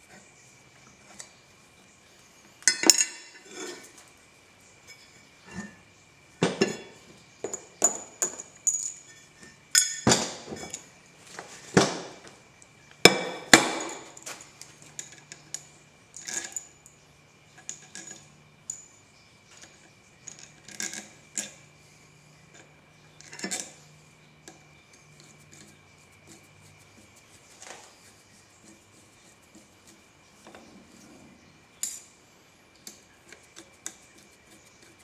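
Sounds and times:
faint steady hum: 0.0 - 35.0
metal clanks and clinks: 2.6 - 3.9, 6.4 - 11.0, 13.0 - 17.0.

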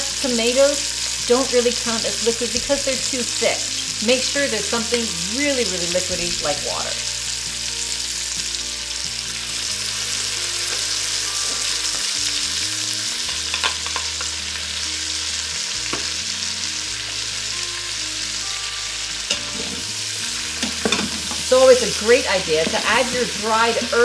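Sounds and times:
food sizzling in a pot: 0.0 - 24.0.

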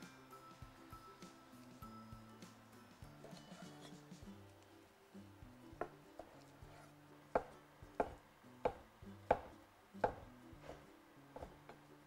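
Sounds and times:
knife chopping on wooden board: 5.8 - 10.8, 11.4 - 11.8.

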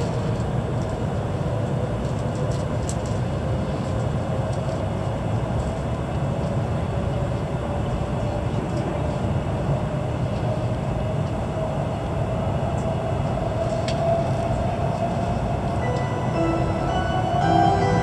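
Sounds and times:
train interior rumble: 0.0 - 18.0
faint rising tone: 15.8 - 18.0.

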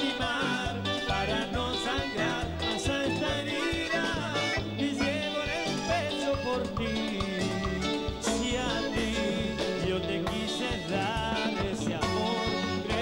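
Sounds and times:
accordion: 0.0 - 13.0
congas: 0.0 - 13.0
electric guitar: 0.0 - 13.0
live latin dance band: 0.0 - 13.0.

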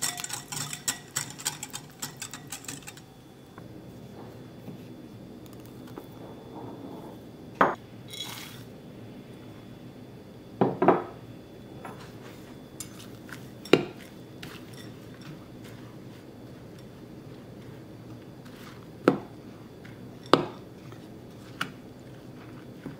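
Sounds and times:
fork scraping: 0.0 - 3.1, 8.1 - 8.7
utensils clinking against glass bowl: 0.0 - 3.1, 12.8 - 15.4.

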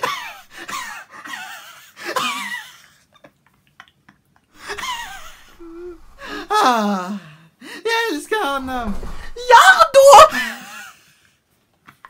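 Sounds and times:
woman moaning and sighing: 4.6 - 7.6.

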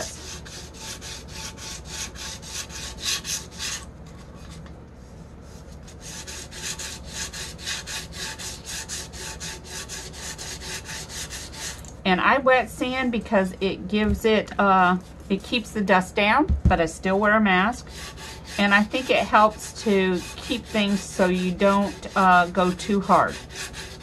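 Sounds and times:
sandpaper rubbing wet surface: 0.0 - 3.8, 4.4 - 11.8, 17.8 - 24.0.

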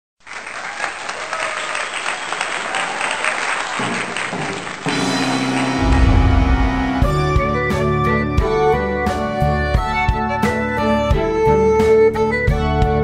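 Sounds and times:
crowd applauding: 0.2 - 7.2
background music: 4.8 - 13.0.

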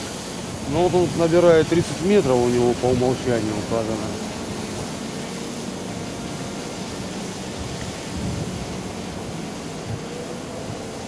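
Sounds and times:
wind noise on microphone: 6.0 - 11.0.

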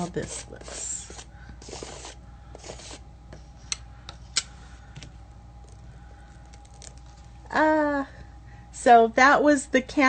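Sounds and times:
spatula scraping paint on stencil: 0.0 - 3.0.

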